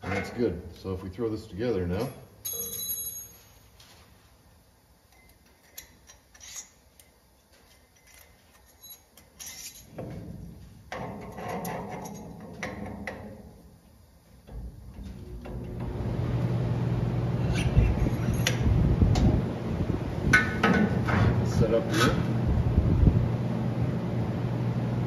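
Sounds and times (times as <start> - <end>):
metal parts rubbing and knocking: 5.6 - 6.8, 7.7 - 10.0.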